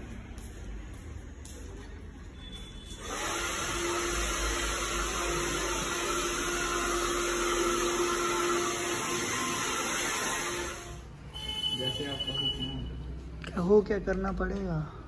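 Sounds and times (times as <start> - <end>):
hair dryer blowing: 3.0 - 11.0.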